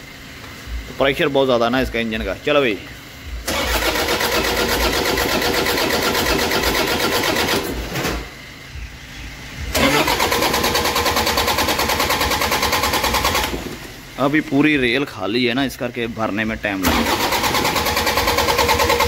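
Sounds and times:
starter motor cranking engine: 3.4s - 8.2s, 9.7s - 14.0s, 16.8s - 19.0s.

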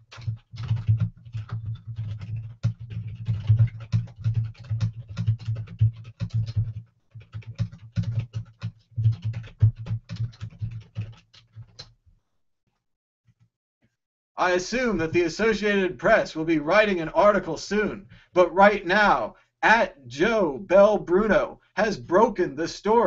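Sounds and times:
fast typing on keyboard: 0.0s - 11.9s.

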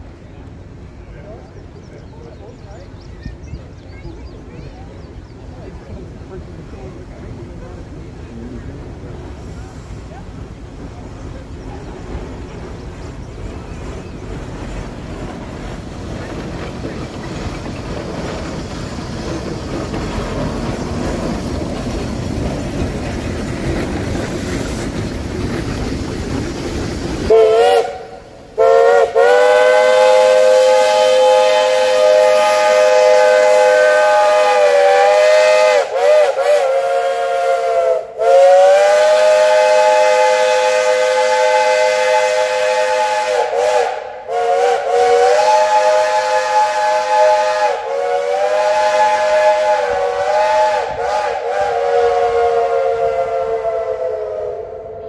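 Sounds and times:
rush of locomotive noise: 0.0s - 55.0s
steam locomotive whistle blasts: 27.3s - 55.0s.

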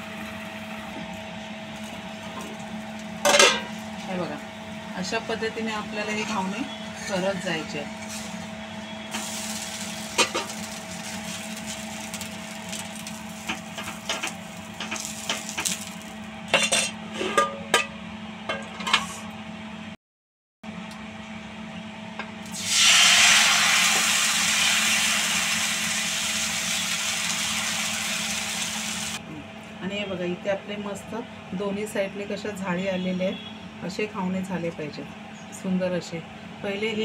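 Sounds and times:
batter sizzling on hot griddle: 9.1s - 16.2s, 22.5s - 29.2s.

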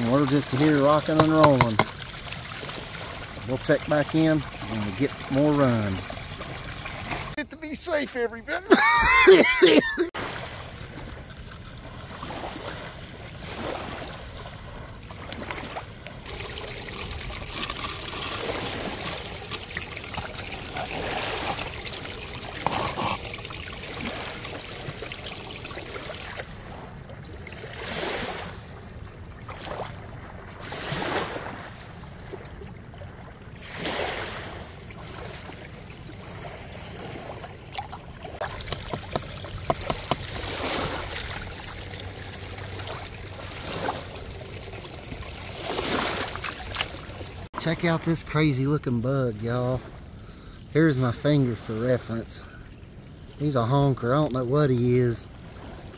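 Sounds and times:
water rushing down a sluice box: 0.0s - 7.4s, 15.3s - 26.6s, 36.7s - 47.8s.

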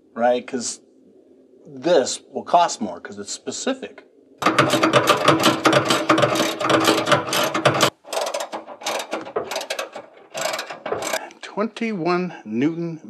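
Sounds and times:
ratchet wrench clicking: 4.4s - 11.2s.

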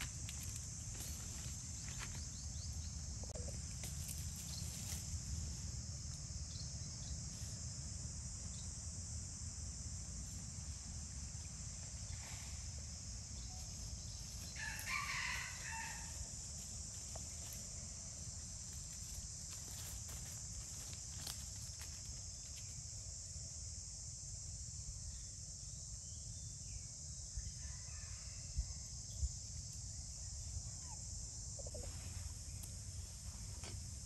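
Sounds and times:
insects droning: 0.0s - 34.0s.

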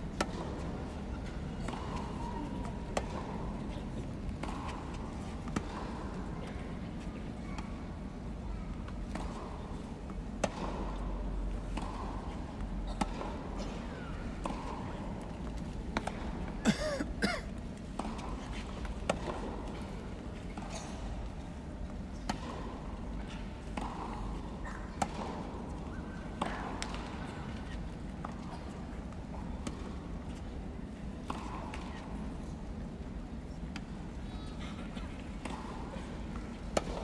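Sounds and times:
murmur of arena crowd: 0.0s - 37.0s
tennis ball bouncing: 0.1s - 3.5s, 9.1s - 11.0s, 11.7s - 13.4s, 14.3s - 16.4s, 18.0s - 19.8s, 23.7s - 24.2s, 26.4s - 28.4s, 36.6s - 37.0s.

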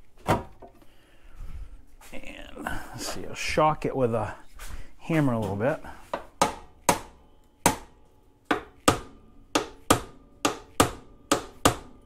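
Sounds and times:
hammer striking metal bolt: 8.5s - 12.0s.

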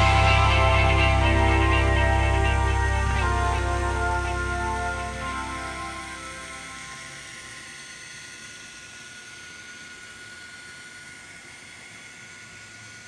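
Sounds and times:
background music: 0.0s - 7.2s
model train motor whir: 0.0s - 13.0s.

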